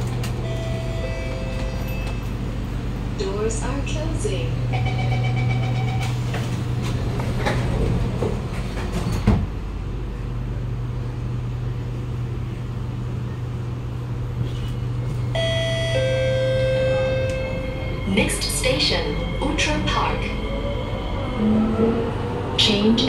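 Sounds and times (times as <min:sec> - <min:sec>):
train cabin hum: 0:00.0 - 0:23.0.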